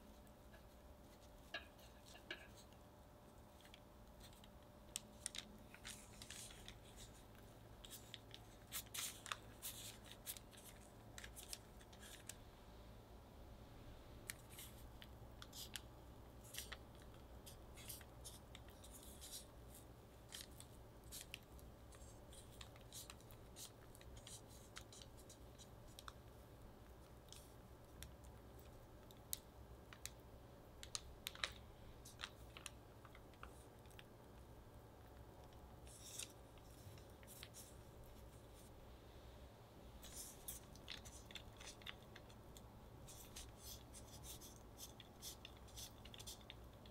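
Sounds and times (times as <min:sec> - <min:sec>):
parchment paper rustling: 0:03.5 - 0:12.4, 0:14.3 - 0:26.2, 0:30.8 - 0:34.1, 0:35.8 - 0:38.8, 0:40.0 - 0:46.9.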